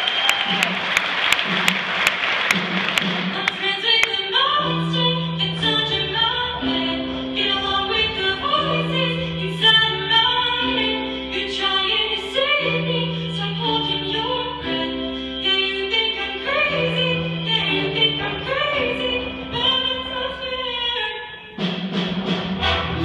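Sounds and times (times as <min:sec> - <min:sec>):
choir singing: 0:03.7 - 0:20.7.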